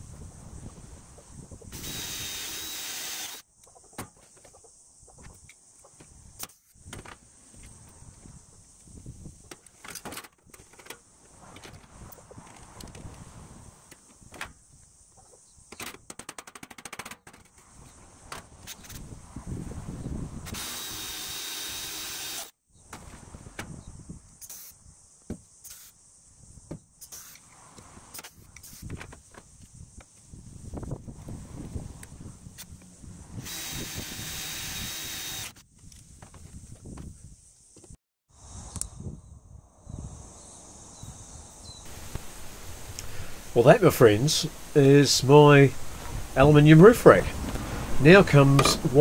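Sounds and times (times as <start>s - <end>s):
power tool hissing: 1.7s - 3.4s, 20.5s - 22.5s, 33.4s - 35.6s
cordless drill whining: 1.8s - 3.4s, 20.5s - 22.5s, 33.4s - 35.6s.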